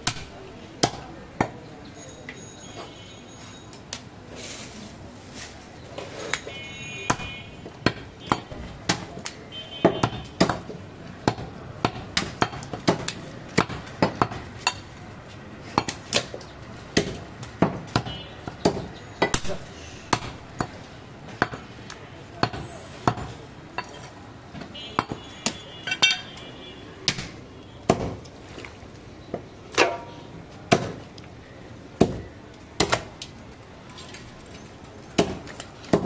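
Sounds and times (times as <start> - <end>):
metallic clinks: 25.9 - 26.4.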